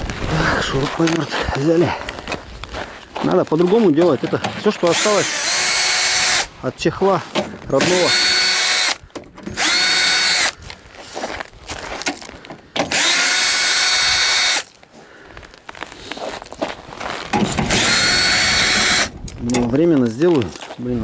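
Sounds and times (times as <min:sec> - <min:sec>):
cordless drill whining: 0:04.8 - 0:06.5, 0:07.8 - 0:10.7, 0:12.8 - 0:14.8, 0:17.4 - 0:19.2.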